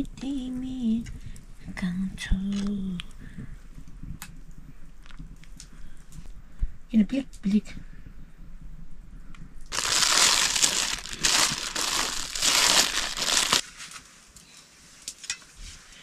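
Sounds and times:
dense crackling crunching noise: 0:09.6 - 0:13.6.

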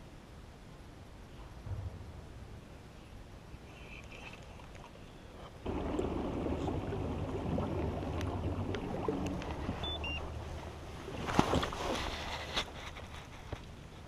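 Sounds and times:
sharp knocks: 0:01.6 - 0:03.8.

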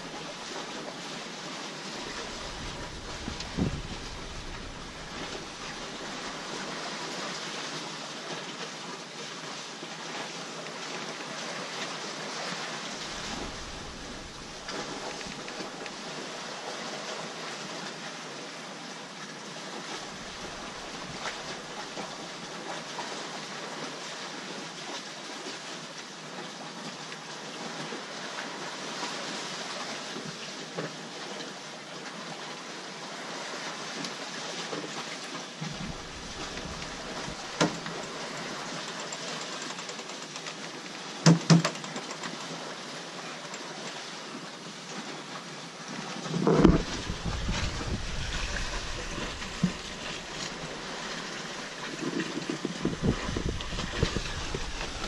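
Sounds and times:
wind and water rushing: 0:00.0 - 0:55.0
wind rumbling on microphone: 0:01.8 - 0:06.7, 0:12.9 - 0:15.8, 0:20.0 - 0:22.2, 0:35.6 - 0:38.2, 0:46.3 - 0:55.0
sharp knocks: 0:02.3 - 0:05.5.

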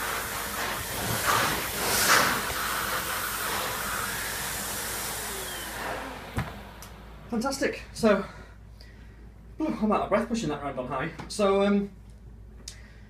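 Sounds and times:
vacuum cleaner on carpet: 0:00.0 - 0:07.7.

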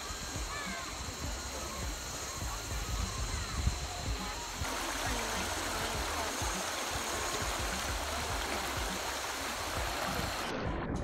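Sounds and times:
stream rushing over rocks: 0:03.8 - 0:10.5.

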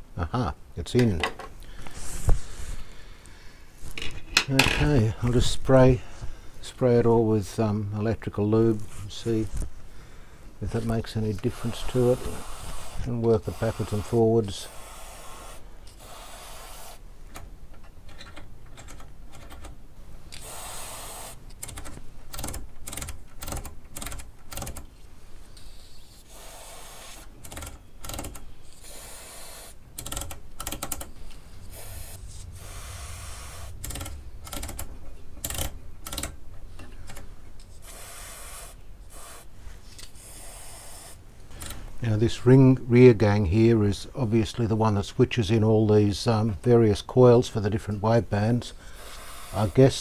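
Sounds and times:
aerosol spray hissing: 0:11.4 - 0:17.1, 0:20.4 - 0:21.4, 0:25.6 - 0:27.3, 0:28.7 - 0:29.8, 0:31.6 - 0:33.8, 0:37.8 - 0:39.5, 0:40.1 - 0:41.2, 0:49.0 - 0:50.0
rotary switch clicking: 0:33.8 - 0:36.4.

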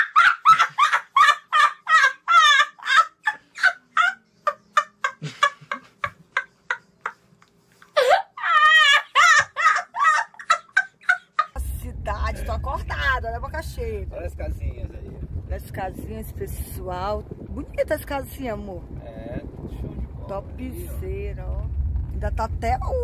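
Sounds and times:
boy laughing hard: 0:00.0 - 0:06.9, 0:08.0 - 0:11.6.

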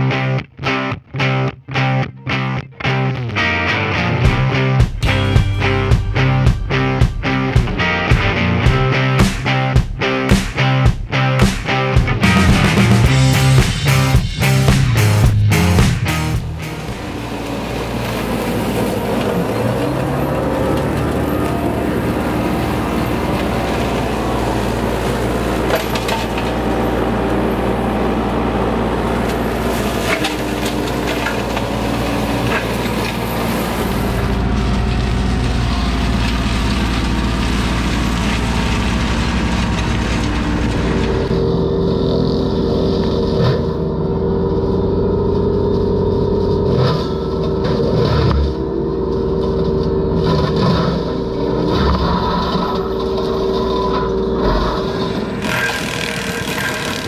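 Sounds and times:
diesel engine running: 0:03.6 - 0:57.0
flail mower shredding brush: 0:04.2 - 0:57.0
woody stems cracking: 0:15.8 - 0:41.4, 0:45.3 - 0:57.0.

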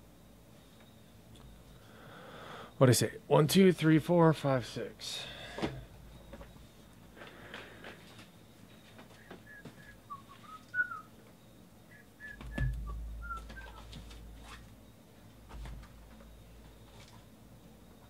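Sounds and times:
person whistling a tune: 0:09.1 - 0:11.2, 0:11.9 - 0:13.9.

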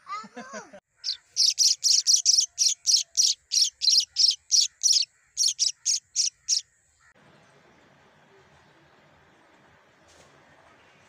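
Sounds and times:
nestlings cheeping: 0:01.0 - 0:06.6.

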